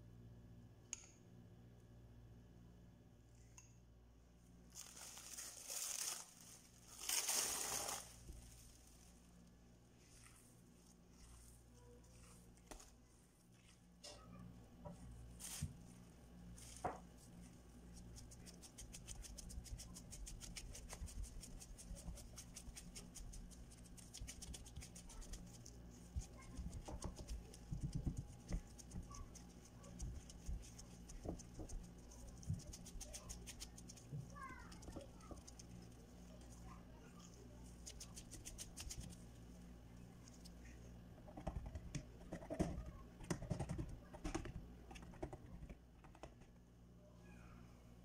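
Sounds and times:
low steady hum: 0.0s - 48.0s
fingertips pressing dough in a pan: 18.0s - 35.8s.

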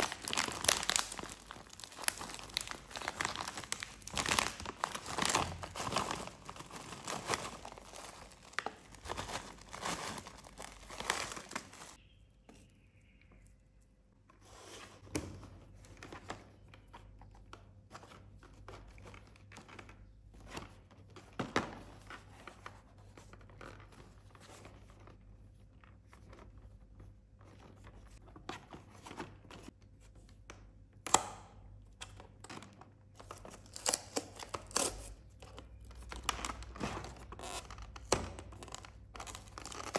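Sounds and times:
plastic snack bag crinkling: 0.0s - 12.0s.

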